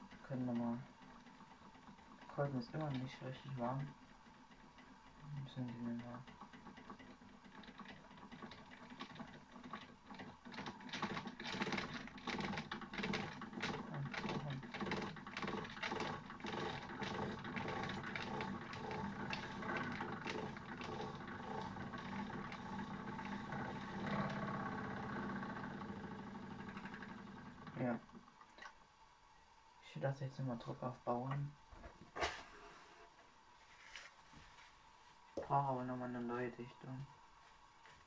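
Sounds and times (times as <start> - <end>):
toy steam engine clattering: 0.0 - 28.1.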